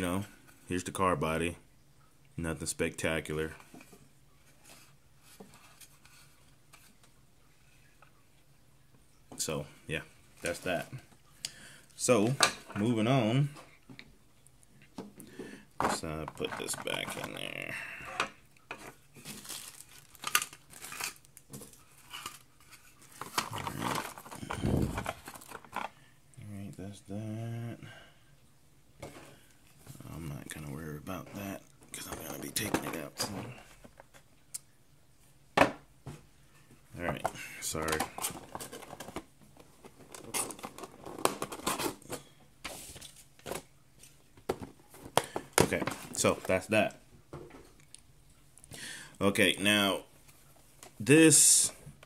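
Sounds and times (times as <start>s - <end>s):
plastic tray crinkling and clicking: 18.2s - 26.0s, 37.1s - 42.2s.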